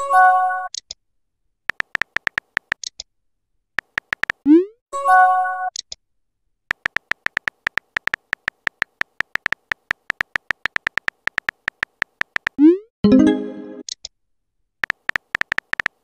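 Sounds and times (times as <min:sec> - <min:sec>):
simulated keyboard typing clicks: 0:01.7 - 0:03.1, 0:03.8 - 0:04.6, 0:06.7 - 0:12.8, 0:14.8 - 0:16.0.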